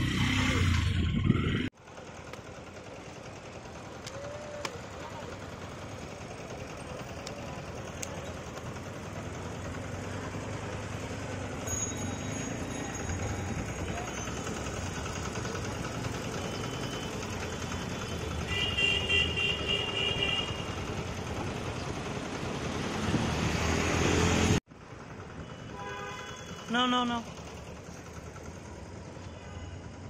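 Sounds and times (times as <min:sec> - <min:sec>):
street traffic rumble: 0:00.0 - 0:30.0
vehicle horn: 0:18.4 - 0:20.8, 0:25.5 - 0:26.9.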